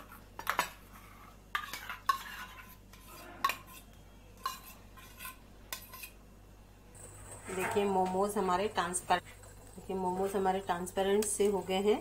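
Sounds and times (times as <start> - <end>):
spoon scraping bowl: 0.4 - 6.2, 6.9 - 8.4.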